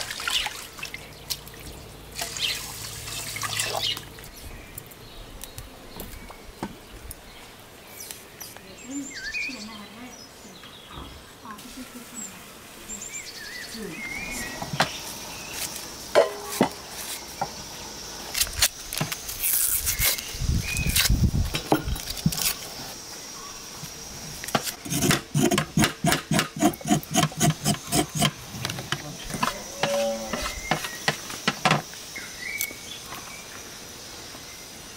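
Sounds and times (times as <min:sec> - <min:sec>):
faint insect hum: 0:00.3 - 0:34.9
birds chirping: 0:03.4 - 0:18.3, 0:26.2 - 0:33.6
knife scraping carrot skin: 0:24.6 - 0:28.3.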